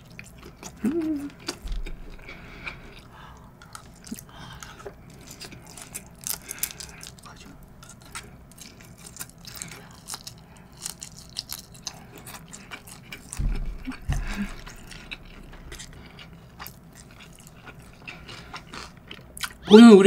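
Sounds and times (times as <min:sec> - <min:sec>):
wet chewing clicks and smacks: 0:00.0 - 0:19.6
low thumps: 0:01.5 - 0:03.0, 0:13.2 - 0:15.9.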